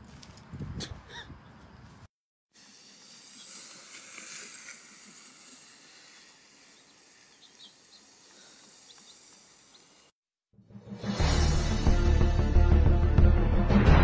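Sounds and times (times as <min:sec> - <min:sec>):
steady high hiss: 0:02.6 - 0:10.2.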